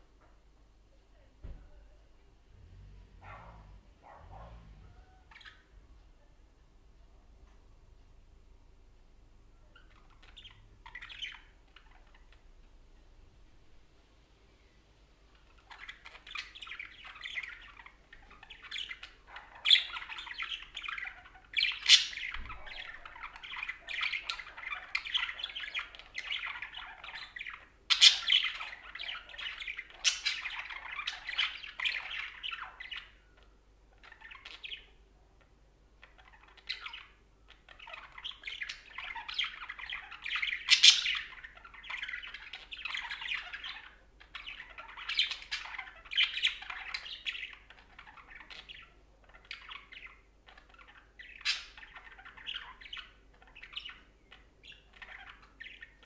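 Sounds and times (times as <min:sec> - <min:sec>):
budgerigar warbling: 0:02.7 - 0:05.7.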